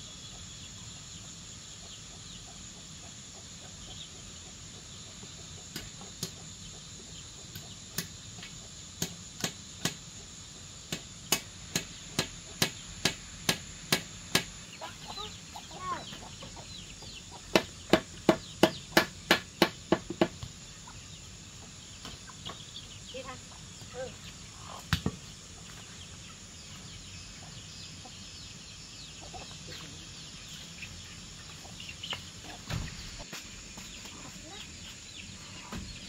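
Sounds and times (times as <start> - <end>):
chickens clucking: 0.0 - 8.9, 14.3 - 36.0
wooden mallet knocking on bamboo: 17.5 - 20.4.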